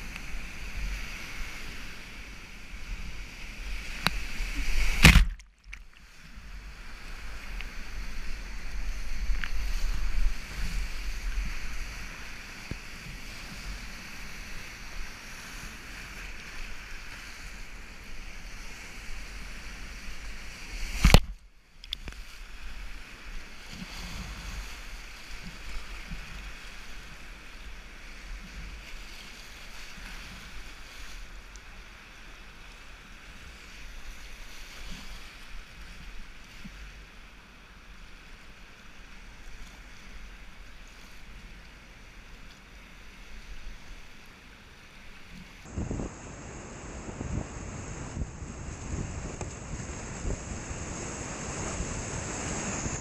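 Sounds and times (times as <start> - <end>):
whitewater rushing: 45.6 - 53.0.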